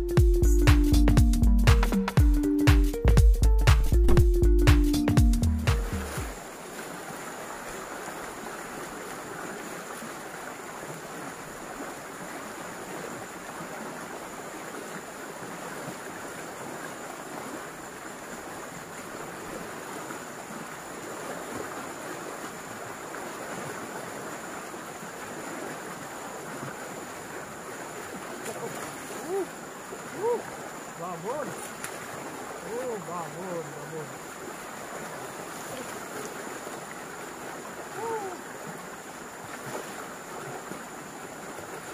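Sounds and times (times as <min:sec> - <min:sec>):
background music: 0:00.0 - 0:06.3
river water rushing over riffle: 0:05.7 - 0:41.9.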